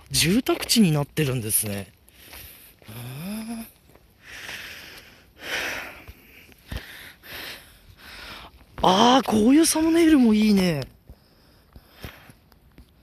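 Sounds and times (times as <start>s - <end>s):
man humming: 2.9s - 3.8s.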